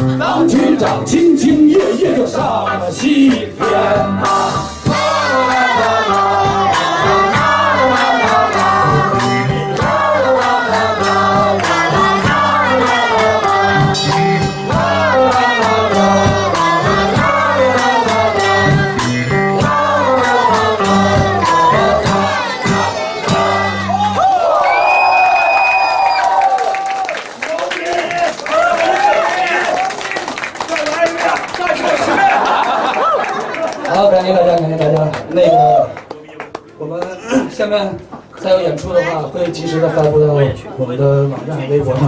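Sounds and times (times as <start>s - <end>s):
wordless singing: 0.0s - 24.0s
guitar: 0.0s - 24.2s
percussion beat: 0.6s - 24.0s.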